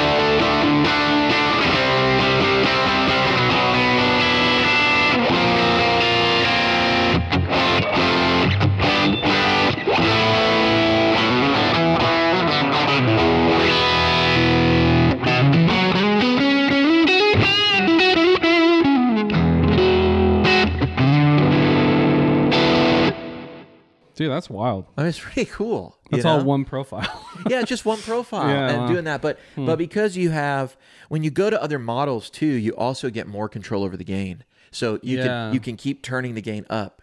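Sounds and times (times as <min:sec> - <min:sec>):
guitar pitch glide with vibrato: 0:00.0 - 0:23.7
electric guitar notes and chords: 0:00.0 - 0:24.0, 0:35.1 - 0:35.6.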